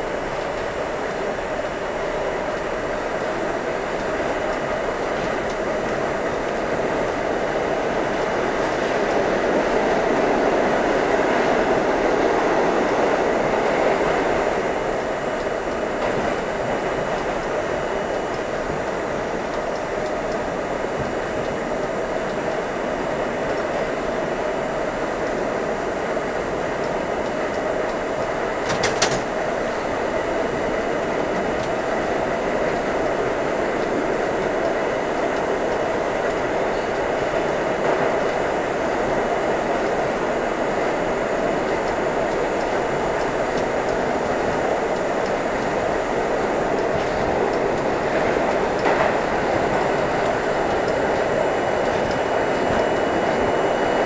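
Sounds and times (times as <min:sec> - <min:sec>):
subway train rumble and rattle: 0:00.0 - 0:54.0.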